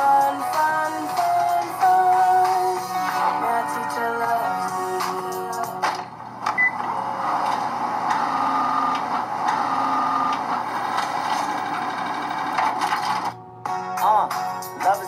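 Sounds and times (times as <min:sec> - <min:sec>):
photocopier whine: 0:00.0 - 0:13.5
photocopier whirring and clicking: 0:05.1 - 0:13.4.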